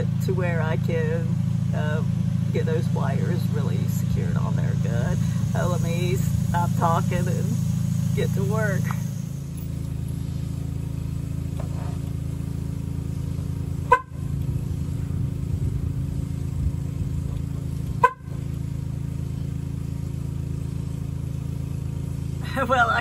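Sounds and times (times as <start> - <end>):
car horn held down: 13.9 - 14.2, 18.0 - 18.4.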